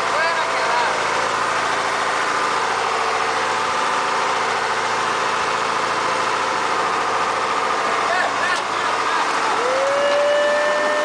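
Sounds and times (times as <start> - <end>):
boat engine pulsing: 0.0 - 11.0.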